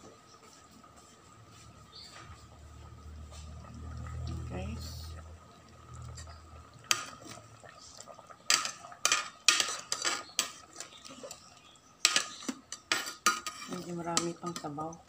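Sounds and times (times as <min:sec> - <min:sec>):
metal ladle clinking and scraping pot: 0:06.0 - 0:07.8, 0:08.4 - 0:15.0.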